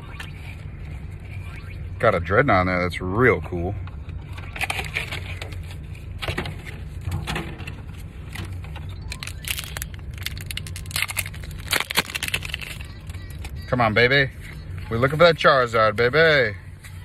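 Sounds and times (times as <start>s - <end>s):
foil wrapper crinkling: 9.1s - 13.5s.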